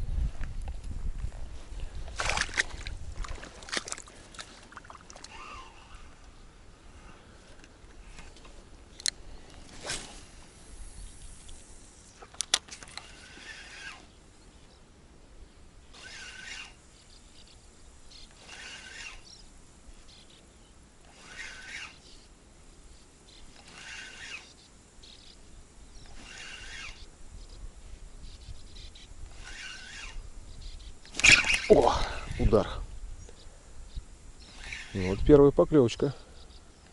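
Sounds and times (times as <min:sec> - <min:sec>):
wind rumble on microphone: 0:00.0 - 0:03.7, 0:30.1 - 0:35.7
fishing reel clicks: 0:10.9 - 0:14.1, 0:15.9 - 0:17.5, 0:18.1 - 0:19.5, 0:21.0 - 0:22.3, 0:23.4 - 0:24.7, 0:26.0 - 0:27.1, 0:28.5 - 0:30.3, 0:31.0 - 0:32.8, 0:34.4 - 0:35.4
fishing rod swish: 0:31.1 - 0:31.9.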